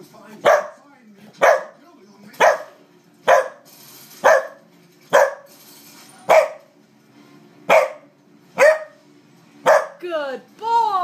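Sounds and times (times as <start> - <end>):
dog barking: 0.4 - 0.8, 1.4 - 1.8, 2.4 - 5.5, 6.3 - 6.7, 7.7 - 9.0, 9.6 - 10.0.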